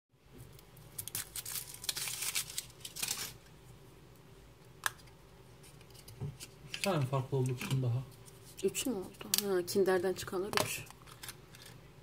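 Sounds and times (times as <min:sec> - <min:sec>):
foil wrapper crinkling and tearing: 0:00.8 - 0:03.5, 0:10.8 - 0:11.8.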